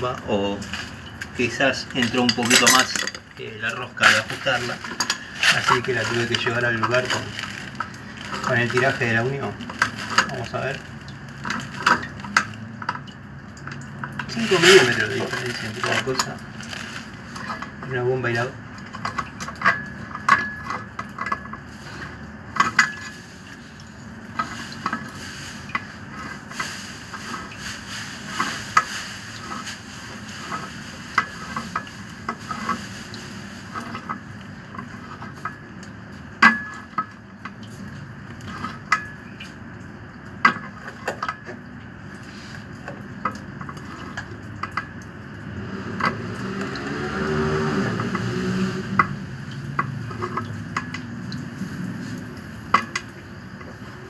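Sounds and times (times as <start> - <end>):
wrench clinking and scraping on metal: 1.9 - 3.3.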